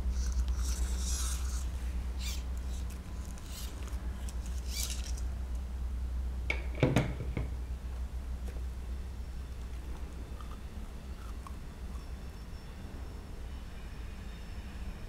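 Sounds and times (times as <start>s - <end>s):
silicone and fabric squeaking: 0.0s - 5.3s
steady low hum: 0.0s - 15.0s.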